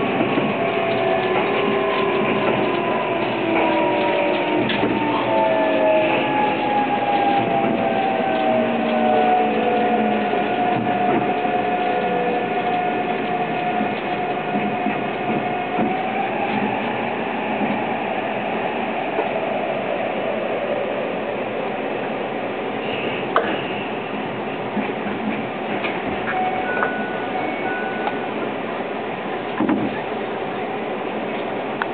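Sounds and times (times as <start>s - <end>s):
train traction motors whining: 0.0s - 19.6s
train car running noise: 0.0s - 31.9s.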